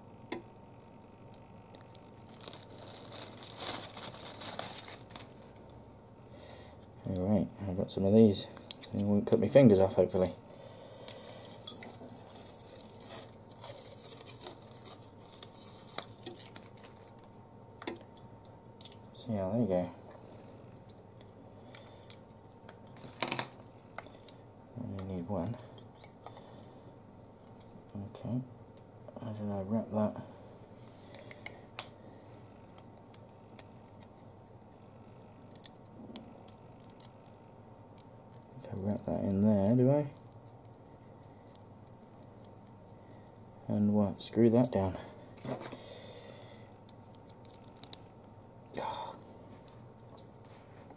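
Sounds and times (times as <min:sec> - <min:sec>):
faint steady hum: 0:00.0 - 0:50.9
wrapping rustling and crinkling: 0:01.8 - 0:05.6, 0:11.0 - 0:17.3
small parts clicking: 0:46.9 - 0:48.3.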